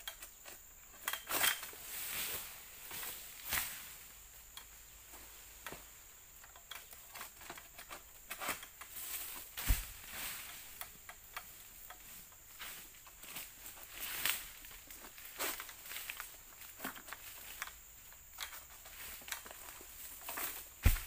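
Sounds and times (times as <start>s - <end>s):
light clicks and rustles: 4.4s - 21.0s
dull thump: 9.6s - 10.0s, 20.8s - 21.0s.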